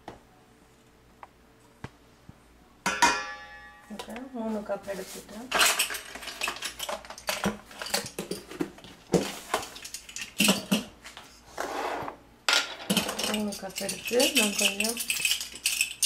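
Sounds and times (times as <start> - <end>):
mixing bowl and jars clinking: 5.5 - 11.0, 12.6 - 16.0
scrape on counter: 11.4 - 12.2.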